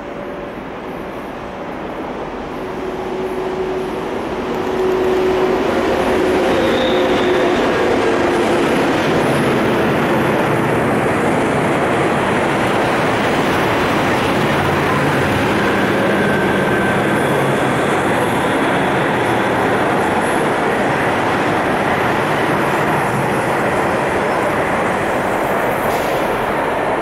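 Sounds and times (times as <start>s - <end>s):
freight train wheels rumbling: 0.0s - 27.0s.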